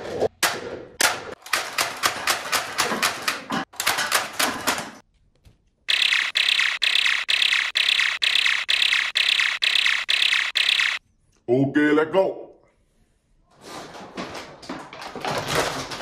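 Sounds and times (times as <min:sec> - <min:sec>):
toy dart blaster firing: 0:05.9 - 0:11.0.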